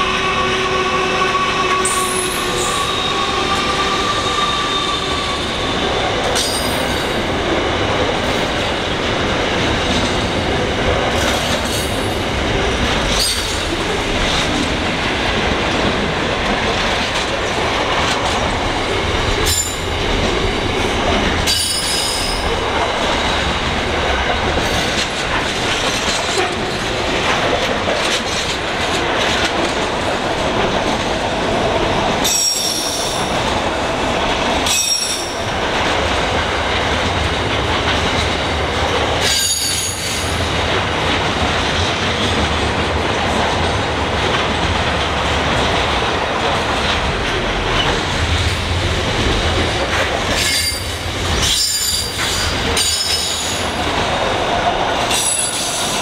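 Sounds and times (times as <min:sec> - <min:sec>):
diesel locomotive engine: 0:00.0 - 0:56.0
high wheel squeals: 0:00.1 - 0:05.7
freight train wagons rolling: 0:01.6 - 0:56.0.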